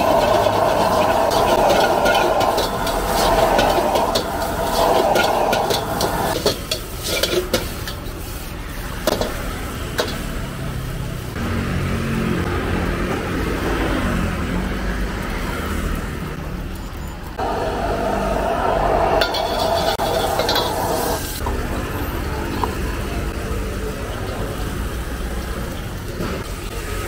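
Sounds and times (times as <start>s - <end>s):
metal ladle clanking on wok: 0.0s - 8.0s
gas burner rushing: 0.0s - 10.5s, 17.4s - 21.5s
rice sizzling: 0.0s - 11.3s, 17.3s - 21.4s.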